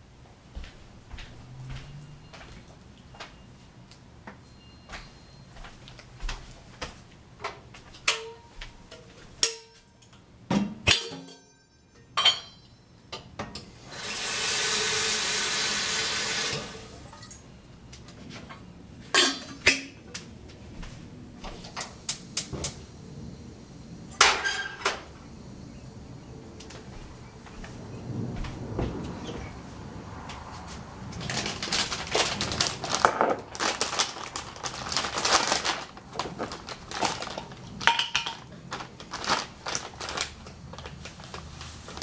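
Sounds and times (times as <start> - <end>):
tap water running into kettle: 13.9 - 17.3.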